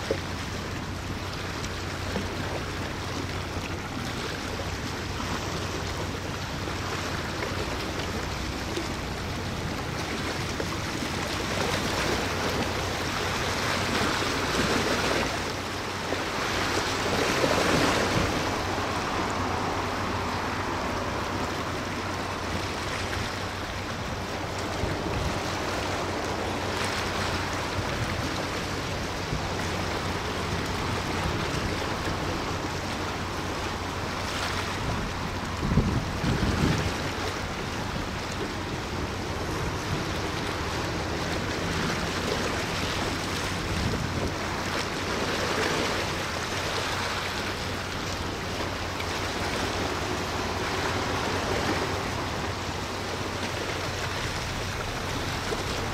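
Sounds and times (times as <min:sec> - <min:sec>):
water rushing: 0:00.0 - 0:55.9.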